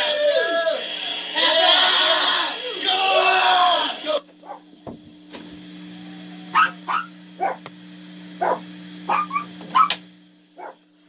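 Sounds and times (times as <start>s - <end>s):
low hum: 4.2s - 11.0s
dog barking: 4.4s - 4.7s, 6.5s - 7.6s, 8.4s - 10.0s, 10.6s - 10.8s.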